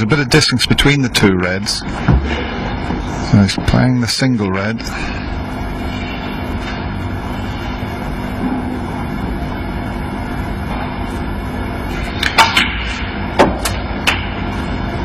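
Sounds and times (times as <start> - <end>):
low background hum: 0.0 - 15.0.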